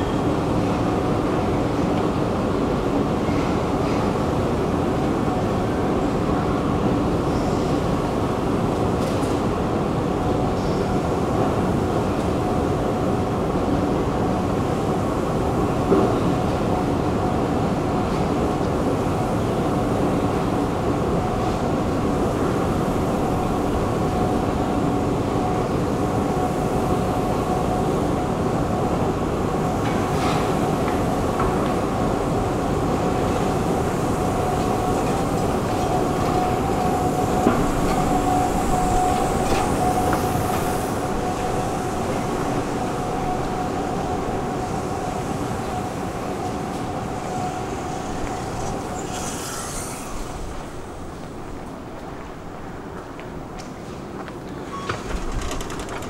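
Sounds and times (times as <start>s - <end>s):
metro train rumble: 0.0s - 56.0s
faint high rising whistle: 36.0s - 51.0s.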